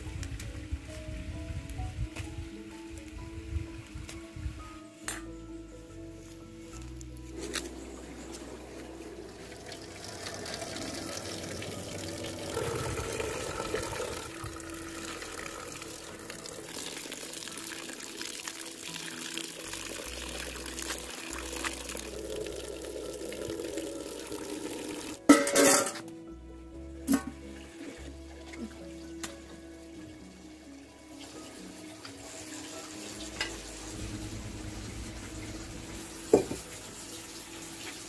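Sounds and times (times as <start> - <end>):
water pouring into metal pot: 8.2 - 26.0, 31.1 - 38.0.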